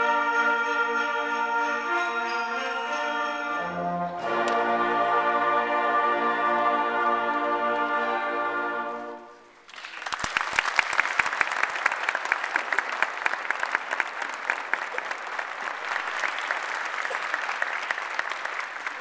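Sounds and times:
audience applause: 9.6 - 19.0.

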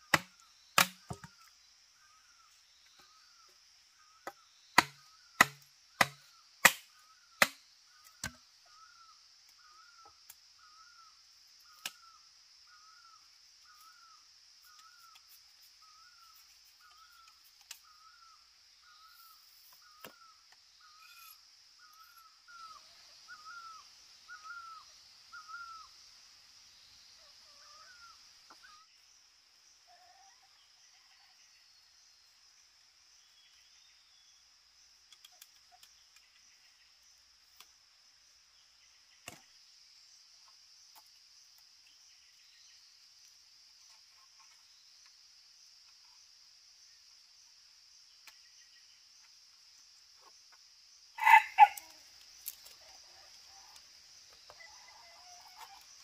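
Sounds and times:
blade chopping wood: 0.1 - 1.4, 4.8 - 7.6.

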